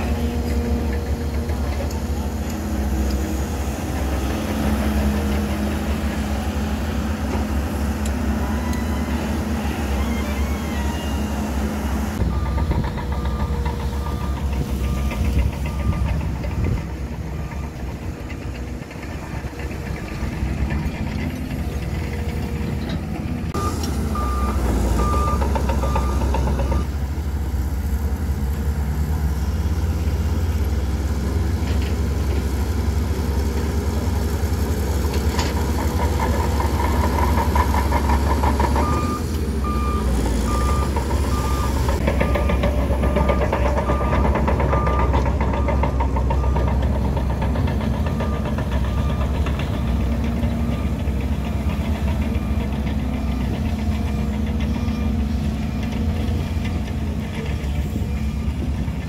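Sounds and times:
bulldozer diesel engine running: 0.0 - 59.0
reversing alarm beeping: 8.1 - 18.6, 23.5 - 26.9, 38.5 - 59.0.

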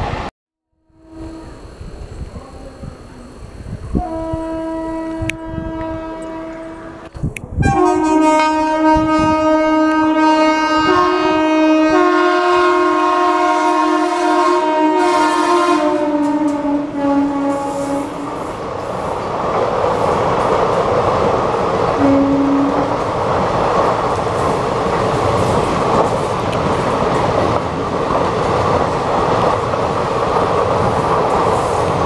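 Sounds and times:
locomotive horn blasts: 0.8 - 1.8, 3.9 - 18.5, 22.0 - 23.0
train coaches rumbling past: 1.0 - 32.0.

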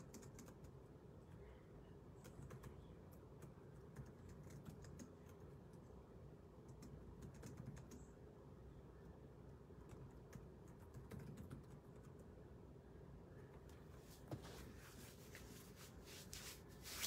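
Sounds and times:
faint keyboard typing: 0.0 - 6.0, 6.6 - 8.3, 9.0 - 12.5.

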